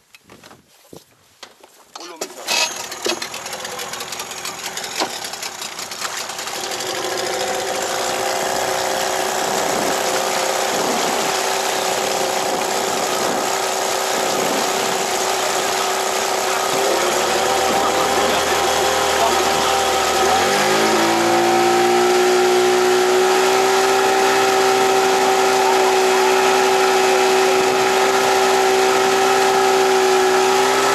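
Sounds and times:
electric reel motor whine: 6.5 - 23.6
deeper hum: 6.5 - 29.4.

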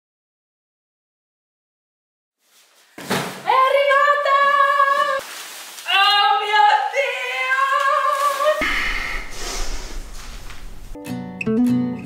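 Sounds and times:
low hum with hiss: 8.6 - 11.0.

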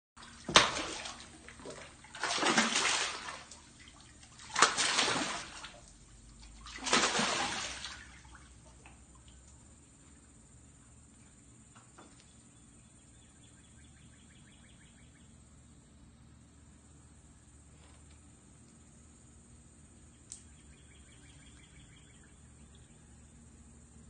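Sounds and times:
fish splashing at water surface: 0.2 - 9.4.

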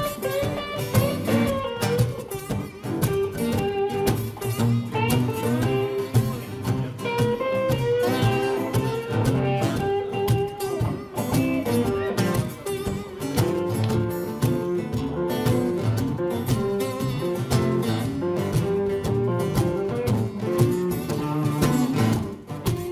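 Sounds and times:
acoustic blues band playing: 0.0 - 22.9
bending lead guitar: 0.0 - 22.9
cajon beat: 0.0 - 22.9.

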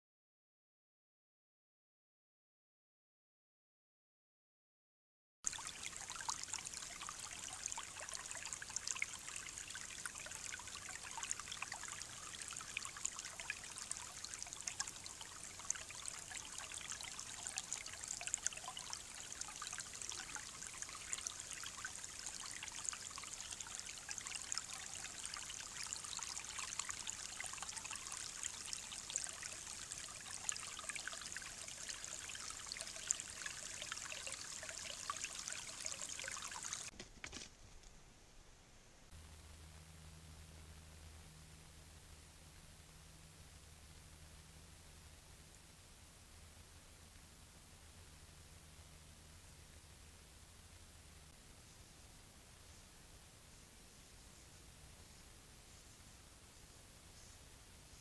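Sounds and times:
creek trickling: 5.5 - 37.4.

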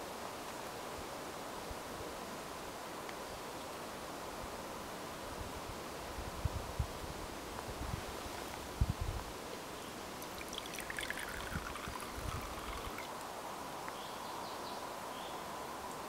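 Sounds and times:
liquid pouring into cup: 10.1 - 13.2.

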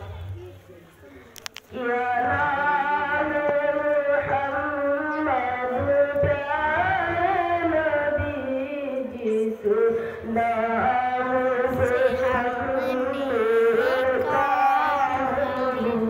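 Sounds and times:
solo voice chanting: 10.4 - 16.0.

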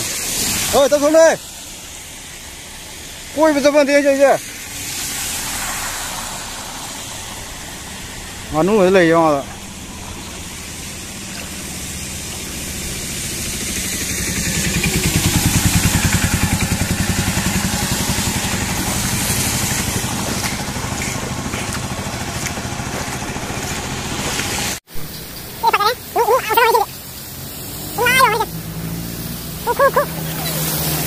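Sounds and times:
rain hiss: 0.0 - 31.0
tyres on wet road: 0.0 - 31.0
vehicle engine running: 9.6 - 31.0.

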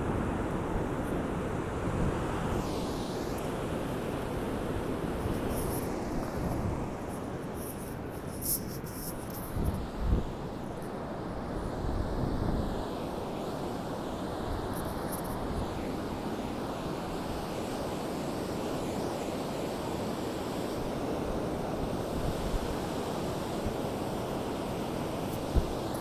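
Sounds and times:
wind rumbling on microphone: 0.0 - 17.6, 24.9 - 26.0
ocean surf breaking on beach: 0.0 - 26.0.

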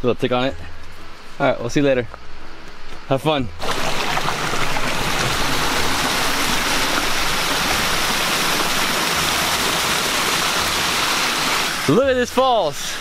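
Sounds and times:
stream cascading over rocks: 3.6 - 13.0.

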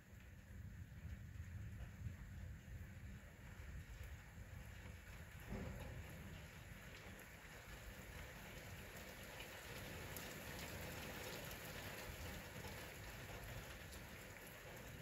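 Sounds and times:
steady rain: 0.0 - 15.0.

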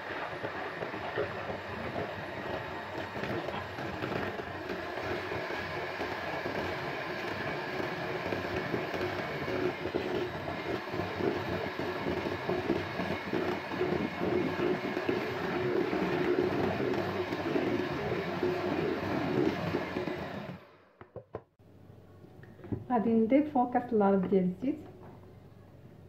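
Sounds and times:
liquid churning: 0.0 - 20.6
electric hand mixer whirring: 0.0 - 21.2.

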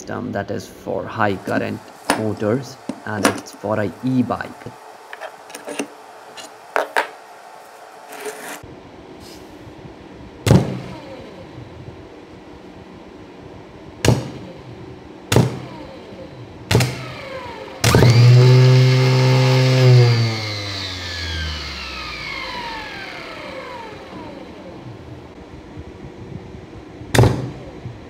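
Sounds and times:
electric motor whining: 1.3 - 8.6, 10.6 - 11.9, 15.4 - 25.4.

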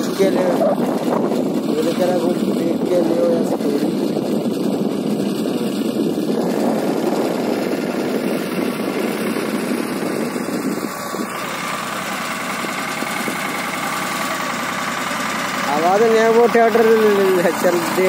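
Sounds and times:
tractor diesel engine running: 0.0 - 18.0.

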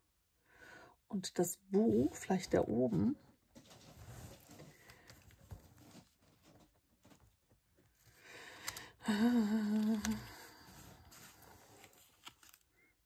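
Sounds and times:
person humming hmm: 9.0 - 10.6.

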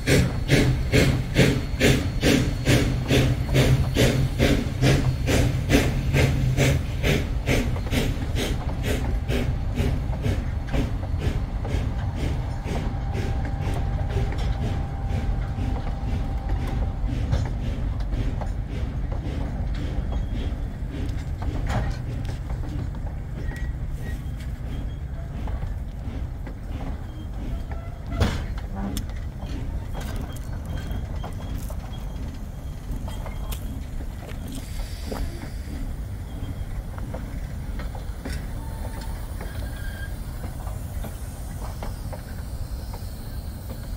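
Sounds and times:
steam train exhaust beating: 0.0 - 43.9
train wheels rumbling: 0.0 - 43.9
faint steady squeal: 23.4 - 25.4, 26.9 - 37.5, 38.2 - 43.9.

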